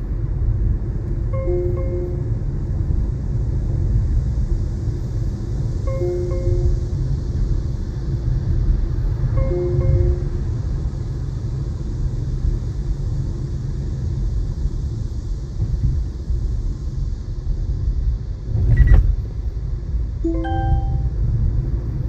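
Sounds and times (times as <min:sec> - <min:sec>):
car road rumble: 0:00.0 - 0:12.8
short electronic chimes: 0:09.4 - 0:10.4, 0:20.2 - 0:21.2.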